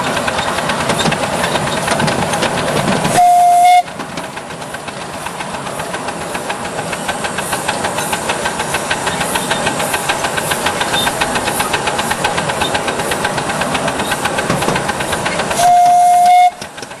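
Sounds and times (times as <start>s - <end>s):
steady steam hiss: 0.0s - 17.0s
steam locomotive exhaust beats: 0.0s - 17.0s
steam whistle blast: 3.1s - 3.9s, 15.6s - 16.6s.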